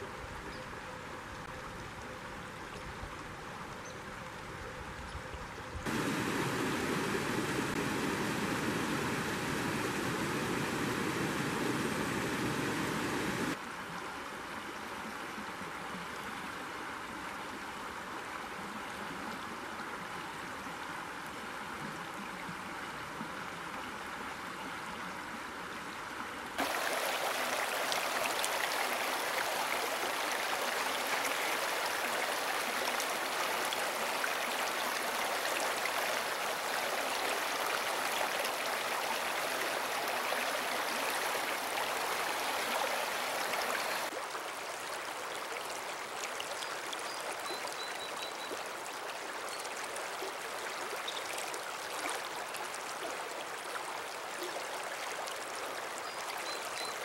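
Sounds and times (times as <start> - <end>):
creek water gurgling over rocks: 5.9 - 13.6, 26.6 - 57.0.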